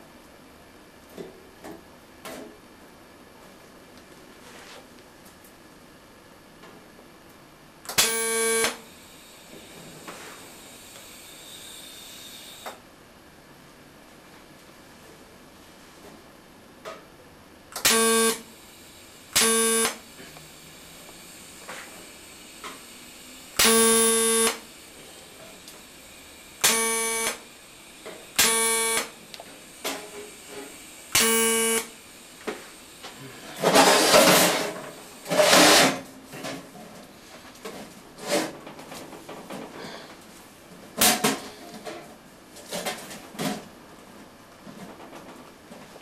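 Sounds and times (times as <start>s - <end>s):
arc welding buzz: 7.8s - 12.8s, 17.7s - 36.1s.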